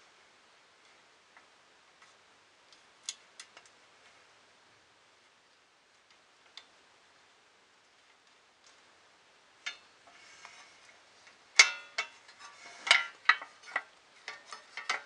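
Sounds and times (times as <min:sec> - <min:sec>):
light metal clicks and taps: 0:00.8 - 0:03.8, 0:11.2 - 0:15.0.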